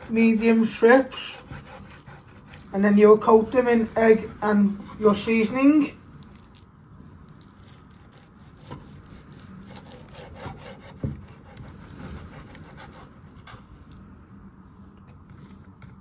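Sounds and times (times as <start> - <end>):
knife sawing through raw meat: 0.0 - 5.9, 7.7 - 13.8.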